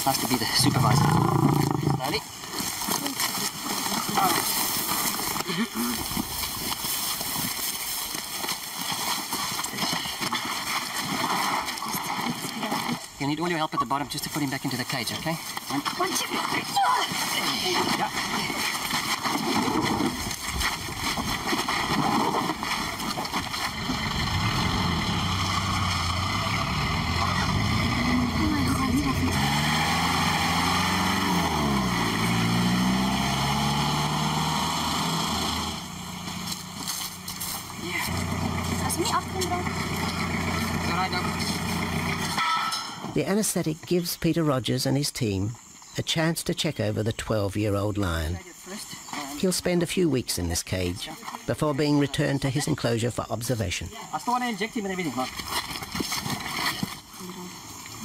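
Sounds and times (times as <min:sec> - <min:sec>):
rustling and scuffing: 0:02.4 - 0:11.7, 0:36.1 - 0:40.8
footsteps crunching through dry grass: 0:02.4 - 0:11.8, 0:35.8 - 0:42.3
truck engine driving off: 0:23.2 - 0:43.2.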